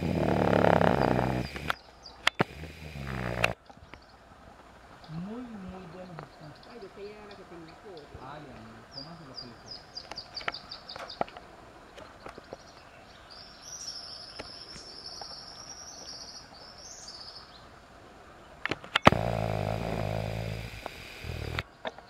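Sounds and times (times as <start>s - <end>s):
buzzy trill: 0.0s - 1.7s, 2.4s - 3.6s, 19.1s - 21.6s
high chirps: 0.0s - 3.6s
small clicks: 0.0s - 4.0s, 18.6s - 22.0s
loud low droning hum: 2.4s - 3.5s, 19.1s - 21.6s.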